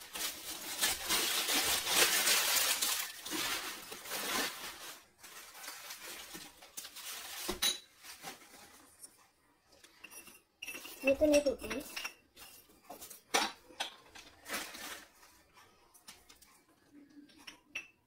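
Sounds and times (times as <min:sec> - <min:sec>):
packaging rustling and crackling: 0:00.0 - 0:09.0, 0:14.1 - 0:16.3.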